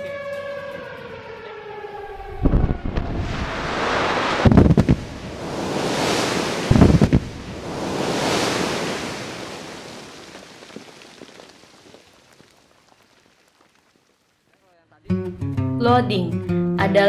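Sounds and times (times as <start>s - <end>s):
quarry blast detonations: 2.2s - 10.2s
rushing rumble of thrown rock: 2.3s - 14.2s
rock fragments landing: 8.8s - 14.5s.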